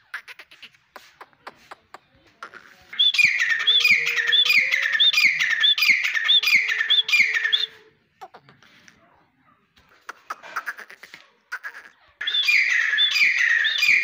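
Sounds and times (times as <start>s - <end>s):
bird calling harsh notes: 2.4s - 7.9s, 10.1s - 14.0s.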